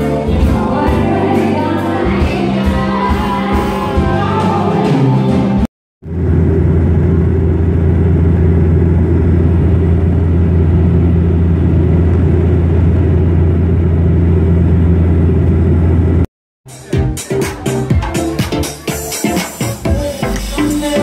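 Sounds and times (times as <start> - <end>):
aircraft engine drone in cabin: 6.0 - 16.2.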